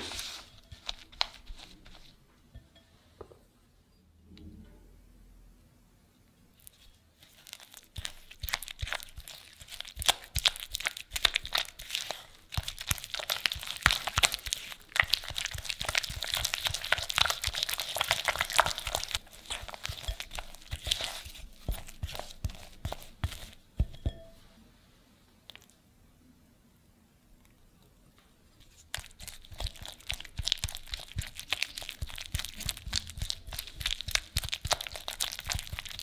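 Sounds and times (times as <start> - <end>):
spatula scraping glass bowl: 19.0 - 24.4.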